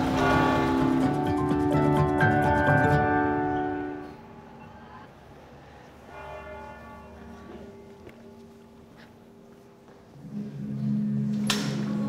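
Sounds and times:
church bells ringing: 0:00.0 - 0:02.2, 0:06.1 - 0:09.0.

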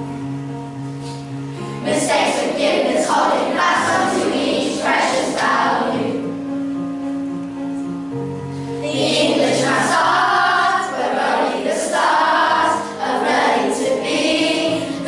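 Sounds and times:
instrumental accompaniment: 0:00.0 - 0:15.0
children's choir singing: 0:01.8 - 0:06.4, 0:08.8 - 0:15.0.

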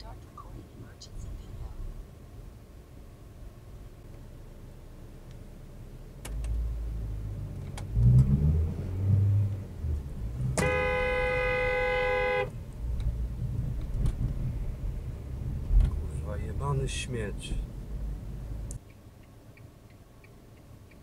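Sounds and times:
car engine rumble: 0:00.0 - 0:21.0
road noise: 0:00.0 - 0:21.0
car horn blast: 0:10.5 - 0:12.6
low thuds: 0:12.8 - 0:16.1.

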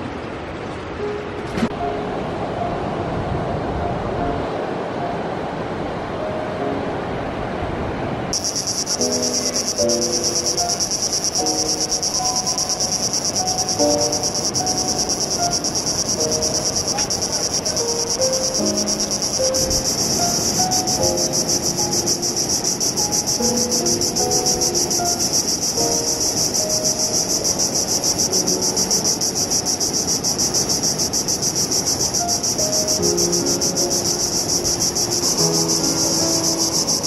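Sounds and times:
slow soft melody: 0:00.8 - 0:07.5, 0:08.4 - 0:31.1, 0:31.7 - 0:37.0
insect chorus trilling: 0:08.4 - 0:37.0.

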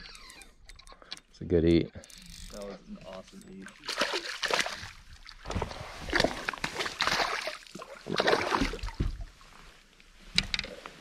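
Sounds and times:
fish thrashing water splashing: 0:03.8 - 0:09.1.

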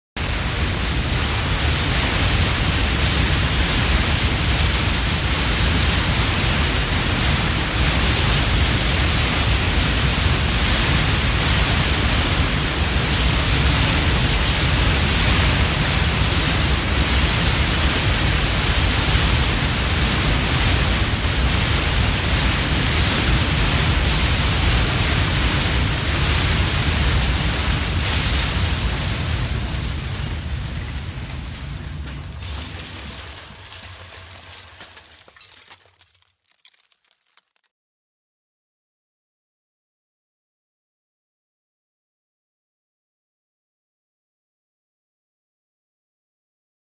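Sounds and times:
building collapse roar: 0:00.2 - 0:37.5.

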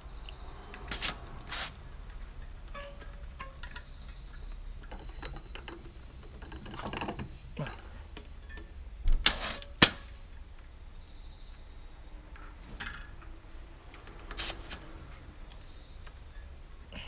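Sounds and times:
air hissing: 0:00.9 - 0:01.8, 0:09.2 - 0:10.3, 0:14.3 - 0:14.9.

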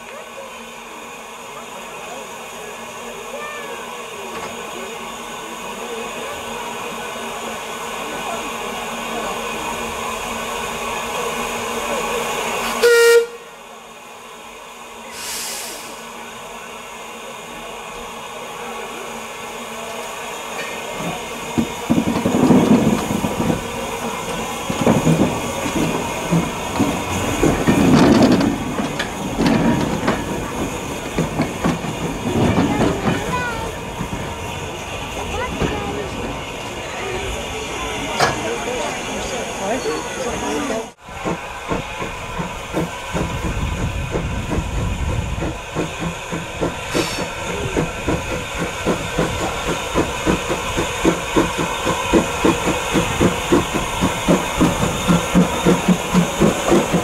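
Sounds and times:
crowd chatter: 0:00.0 - 0:57.0
steam locomotive whistle: 0:12.6 - 0:13.6
steam locomotive exhaust beats: 0:14.7 - 0:39.6, 0:40.9 - 0:57.0.

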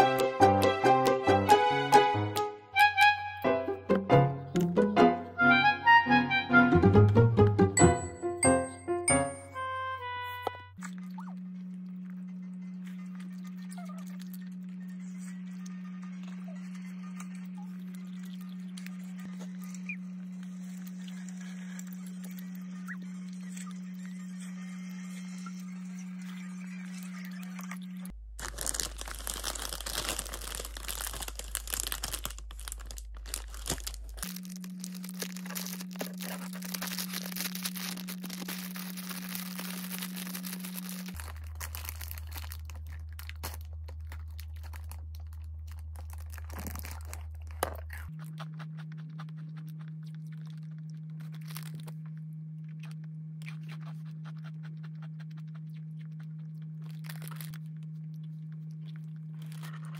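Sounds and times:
cellophane wrapper crinkling and tearing: 0:27.6 - 0:59.9
wrapper handling: 0:28.4 - 0:48.1, 0:51.2 - 0:52.0, 0:56.9 - 0:57.7, 0:59.3 - 0:59.9
crisp snack snapping: 0:28.4 - 0:59.9.

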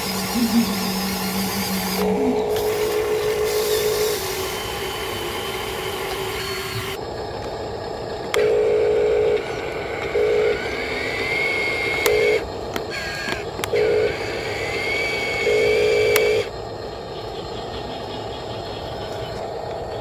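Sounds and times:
small electric motors whining: 0:00.0 - 0:20.0.

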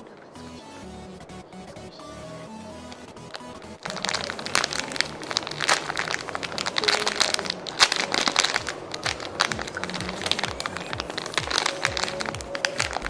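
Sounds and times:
plastic bag crinkling: 0:02.9 - 0:13.0.

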